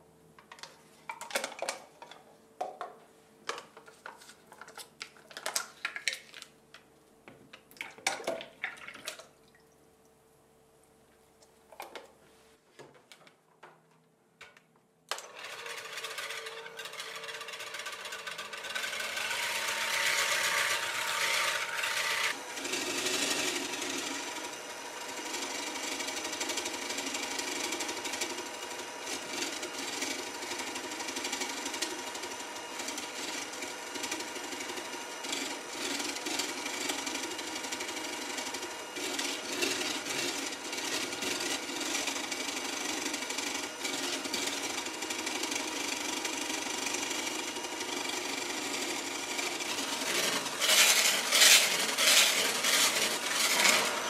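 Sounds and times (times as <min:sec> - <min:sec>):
electric hand mixer whipping cream: 0:15.2 - 0:54.0.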